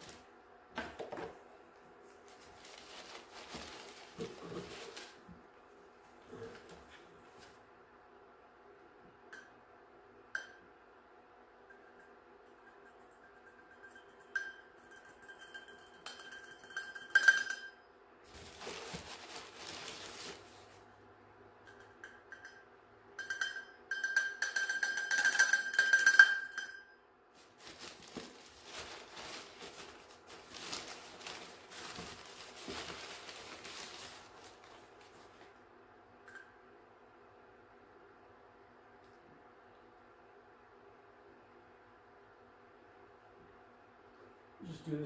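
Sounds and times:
scratchy rustling of handling: 2.0s - 7.6s, 18.3s - 20.9s, 27.4s - 35.6s
metal shaker ringing: 11.7s - 17.8s, 21.7s - 27.0s.

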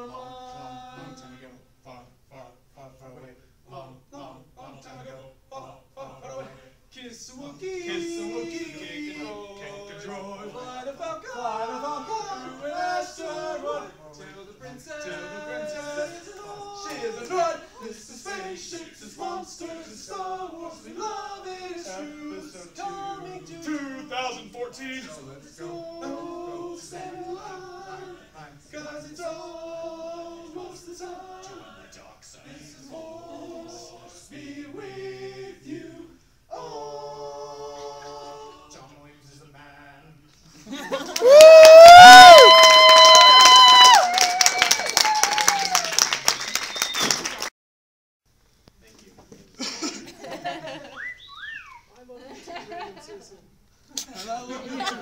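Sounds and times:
men singing: 0.0s - 40.2s.

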